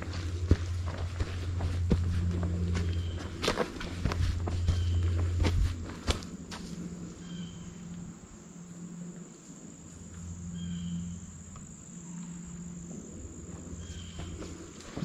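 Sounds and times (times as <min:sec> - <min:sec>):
insects trilling: 0:00.0 - 0:15.0
low chirp: 0:00.2 - 0:05.8, 0:06.7 - 0:14.5.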